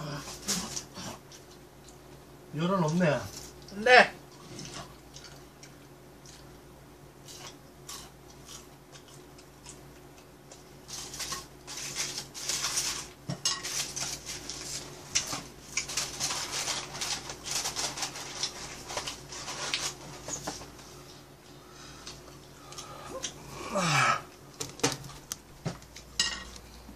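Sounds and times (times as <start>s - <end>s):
aluminium foil crinkling: 10.5s - 20.9s.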